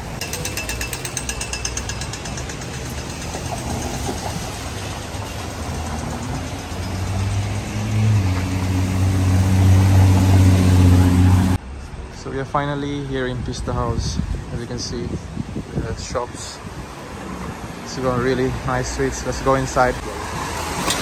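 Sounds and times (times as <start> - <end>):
traffic on a wet street: 0.0 - 21.0
pedestrian crossing signal ticking: 0.1 - 4.4
car engine passing by: 3.4 - 11.6.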